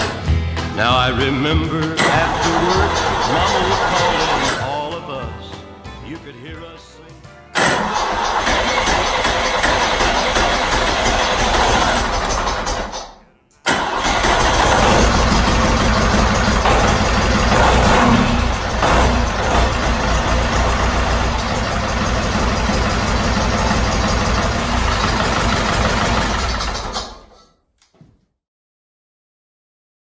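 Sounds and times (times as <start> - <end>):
tractor engine running: 0.0 - 5.0, 7.6 - 13.1, 13.7 - 27.4.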